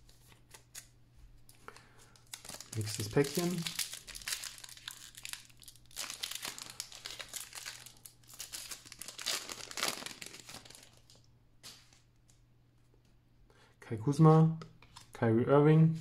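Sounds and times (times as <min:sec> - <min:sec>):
foil wrapper crinkling: 0:02.0 - 0:12.0.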